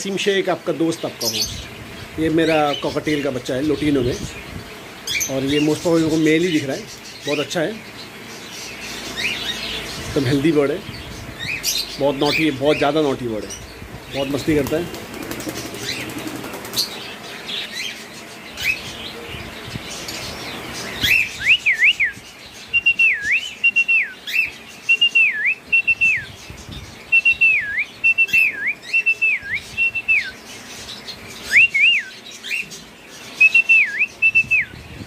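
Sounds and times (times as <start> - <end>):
cage birds chirping: 0.0 - 35.0
cockatiel whistling a tune: 21.4 - 24.2, 24.9 - 26.3, 27.1 - 30.4, 31.5 - 32.1, 33.4 - 34.7.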